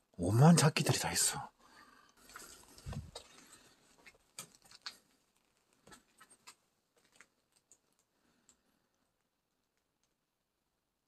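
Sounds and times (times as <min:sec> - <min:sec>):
faint clicks and taps: 0:02.1 - 0:10.2.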